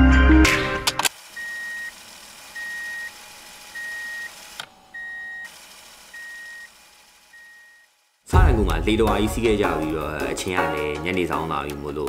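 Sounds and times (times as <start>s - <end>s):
electronic warning beeps: 1.4s - 1.9s, 2.6s - 4.3s, 4.9s - 5.5s, 6.1s - 6.7s, 7.3s - 7.8s.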